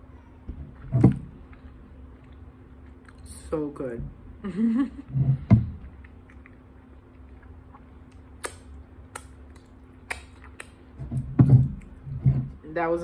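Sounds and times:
lip smacks: 5.8 - 11.0.

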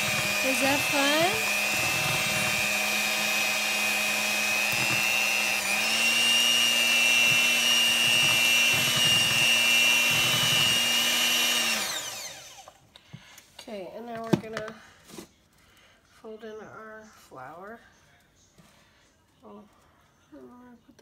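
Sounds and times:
electric hand mixer whining: 0.0 - 12.9.

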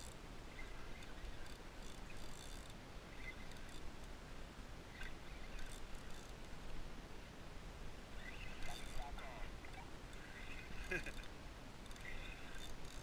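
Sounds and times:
faint wind: 0.0 - 13.0
water noise: 0.0 - 13.0
faint short squeaks: 9.6 - 13.0.

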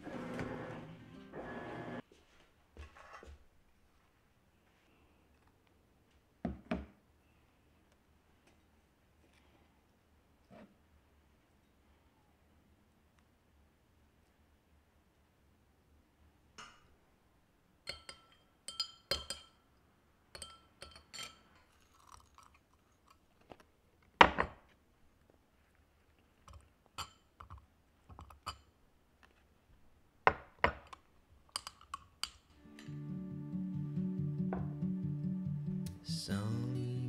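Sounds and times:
tableware clinking: 17.9 - 19.6, 20.4 - 21.8.

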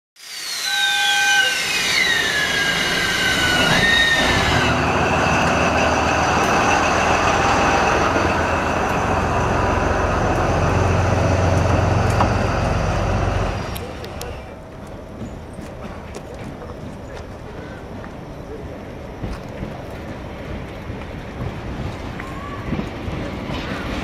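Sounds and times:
train wheel squeal: 0.2 - 9.4
freight train rumble: 0.2 - 24.0.

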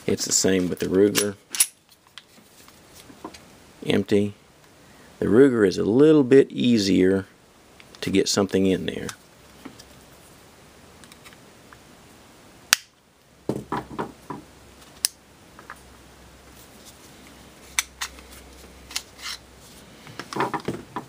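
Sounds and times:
metallic clicks of pistol parts: 1.1 - 1.8
pistol slide set on table: 17.6 - 19.4.

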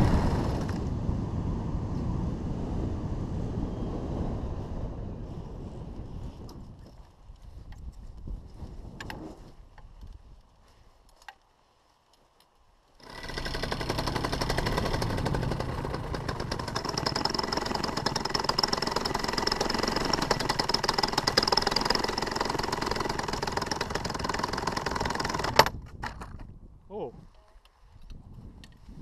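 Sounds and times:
two-stroke engine rattling drone: 0.0 - 0.9, 13.0 - 26.4.

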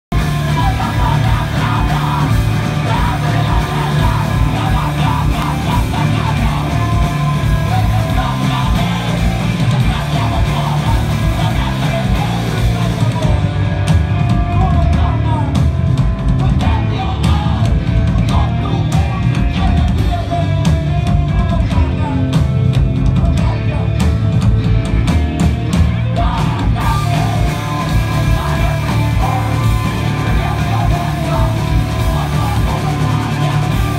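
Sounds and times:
rock band playing live: 0.0 - 33.9.

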